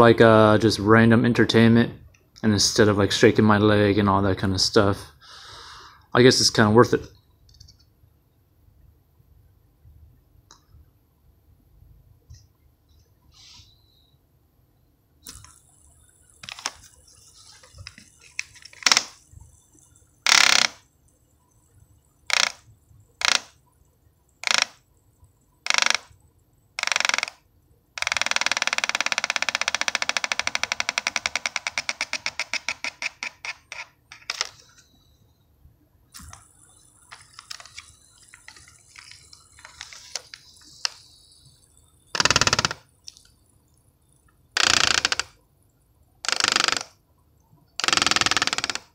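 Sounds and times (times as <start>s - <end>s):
fidget spinner whirring: 15.2s - 35.4s, 36.0s - 45.6s.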